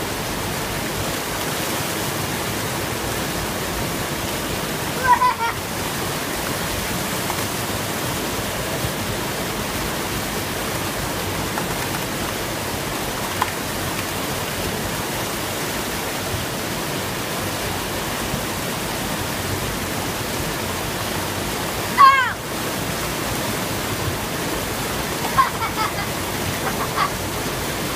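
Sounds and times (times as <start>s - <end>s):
high-pitched cry: 5.0s - 5.6s, 22.0s - 22.4s, 25.2s - 27.2s.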